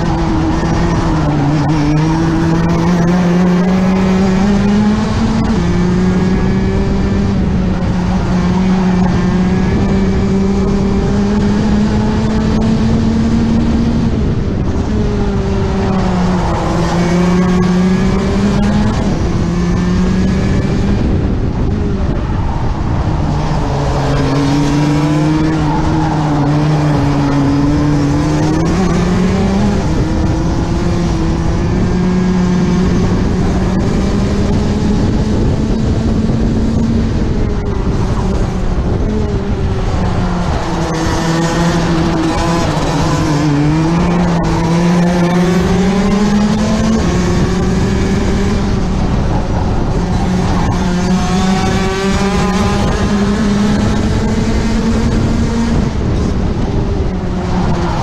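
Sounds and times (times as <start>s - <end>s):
kart engine revving: 0.0s - 58.0s.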